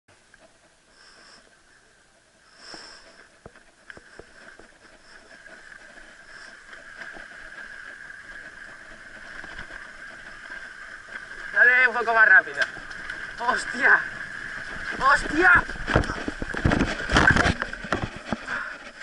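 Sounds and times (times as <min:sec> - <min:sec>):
bicycle tyre riding noise: 0:00.1 - 0:19.0
bike knocks and rattles: 0:12.5 - 0:19.0.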